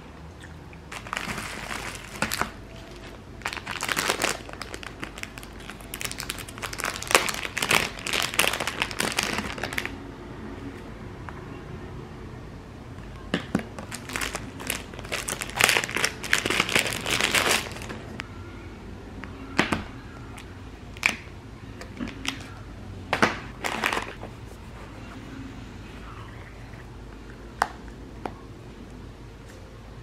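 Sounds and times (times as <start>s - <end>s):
plastic and paper packaging rustling: 0.9s - 9.9s, 13.8s - 18.1s, 23.6s - 25.1s.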